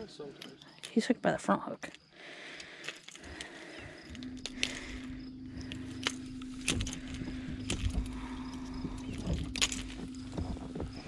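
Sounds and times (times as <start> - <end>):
boat motor humming: 2.1 - 11.0
sharp clicks and knocks: 2.6 - 11.0
low rumble: 3.6 - 11.0.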